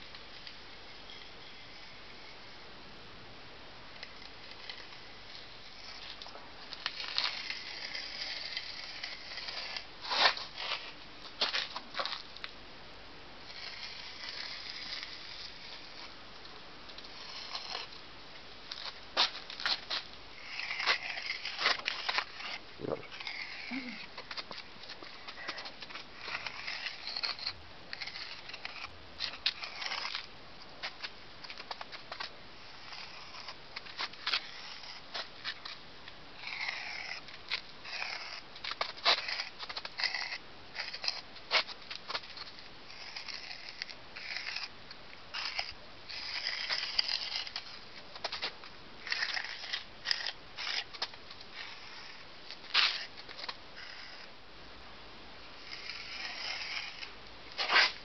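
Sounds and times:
trowel scraping mortar: 18.7s - 35.8s, 45.4s - 54.3s, 55.6s - 58.0s.

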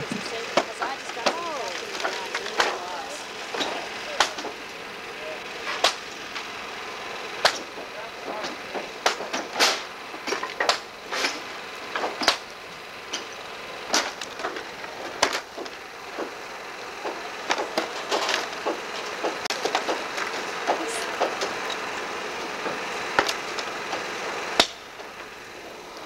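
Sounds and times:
wood knocking and cracking: 0.0s - 4.8s.

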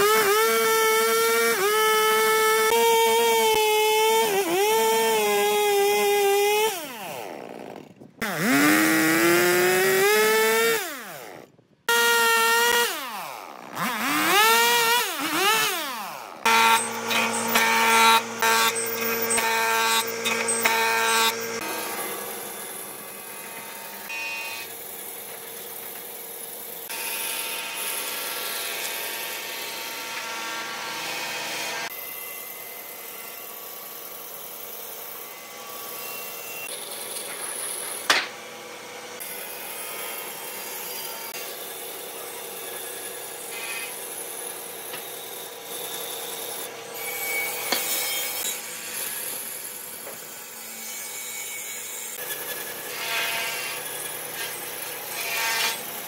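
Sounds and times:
chainsaw cutting log: 0.0s - 32.0s, 32.8s - 50.3s
band saw cutting log: 0.0s - 56.0s
woodworking machine running: 14.0s - 33.2s.

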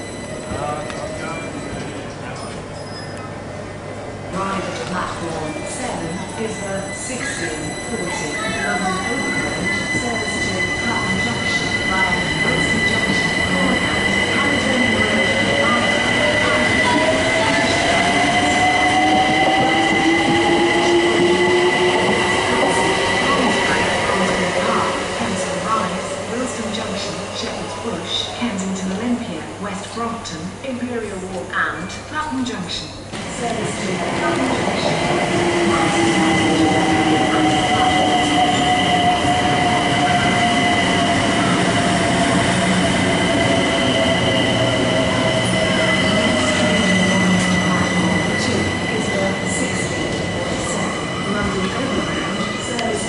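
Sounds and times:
train rumbling: 0.0s - 30.1s, 33.0s - 53.0s
rail and wheel noise: 0.0s - 53.0s
steady high tone: 5.2s - 27.9s
steady high squeal: 5.6s - 27.2s.

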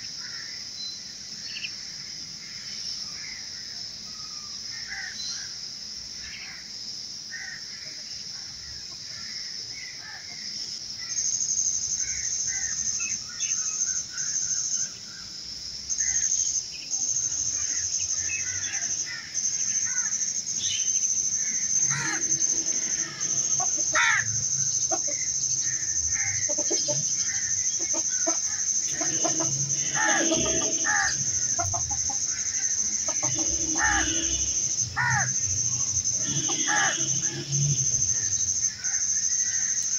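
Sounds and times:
high-pitched drone: 20.8s - 39.9s
bird calls and clucking: 21.5s - 34.2s.

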